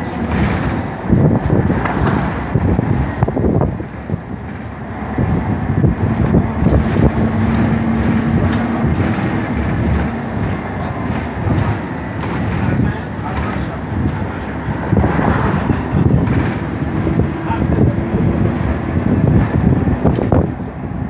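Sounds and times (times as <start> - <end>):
bus engine and road noise: 0.0 - 21.0
clicks and rattles: 6.2 - 14.8.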